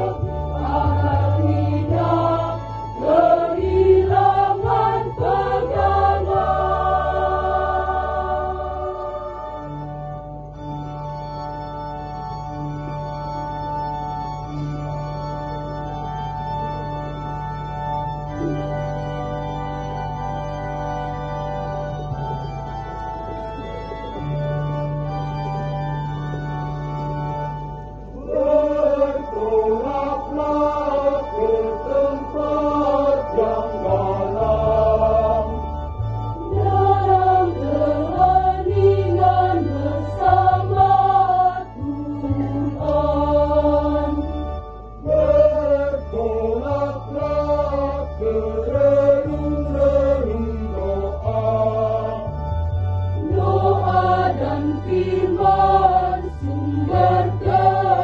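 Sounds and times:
mixed choir singing a hymn: 0.0 - 10.0, 28.2 - 35.7, 36.3 - 52.6, 53.2 - 58.0
electronic organ bass notes: 0.0 - 58.0.

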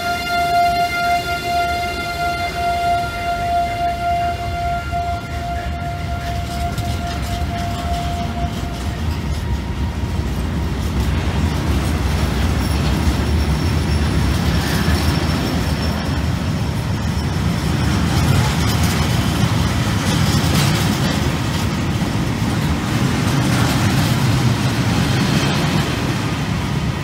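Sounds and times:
steel wheels rumbling on rail: 0.0 - 27.0
high wheel squeal: 11.5 - 21.0.

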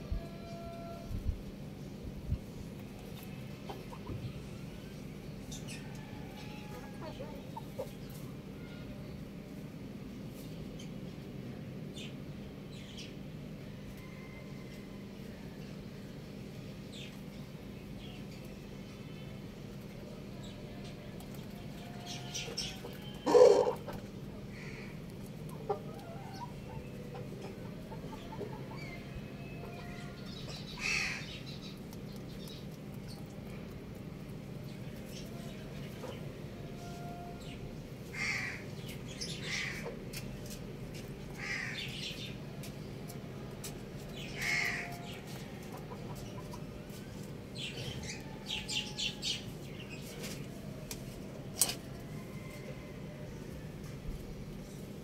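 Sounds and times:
rooster crowing: 0.0 - 1.2, 51.9 - 53.8.

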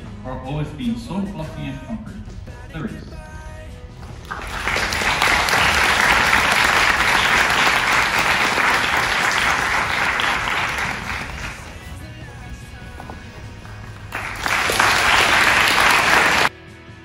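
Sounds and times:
audience applauding: 4.0 - 16.5.

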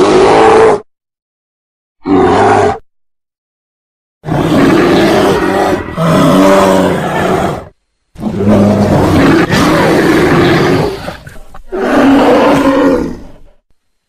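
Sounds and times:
bear roaring: 0.0 - 0.9, 2.0 - 2.8, 4.2 - 13.6.

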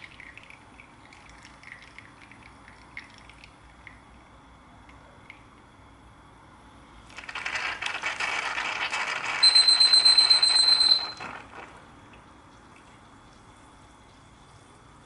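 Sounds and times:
moka pot sputtering and gurgling: 7.0 - 12.0
high steady whistle: 9.4 - 11.2.

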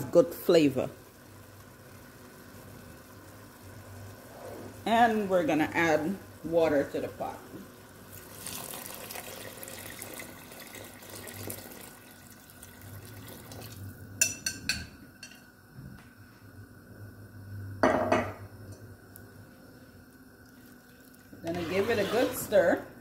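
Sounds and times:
water pouring and splashing: 8.1 - 13.9.

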